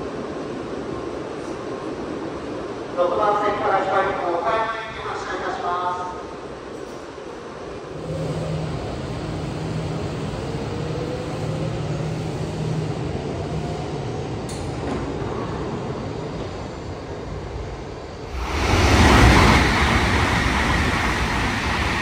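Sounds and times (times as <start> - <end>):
train rumbling: 0.0 - 22.0
faint rising whine: 7.9 - 21.5
low hum: 7.9 - 22.0.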